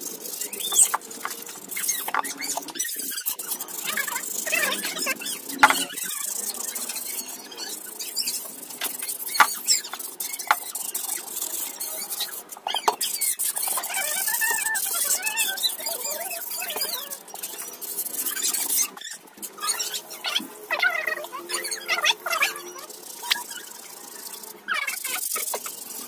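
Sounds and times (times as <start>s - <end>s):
sandpaper rubbing on metal: 0.0s - 20.2s, 21.4s - 26.0s
sharp knocks: 5.6s - 5.9s.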